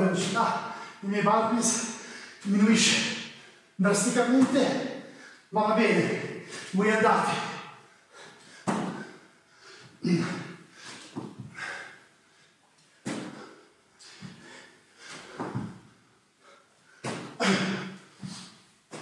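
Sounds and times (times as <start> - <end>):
man breathing hard: 7.7 - 18.6
hands and feet thudding on mat: 8.7 - 9.2, 10.9 - 11.6, 13.0 - 15.9, 17.0 - 19.0.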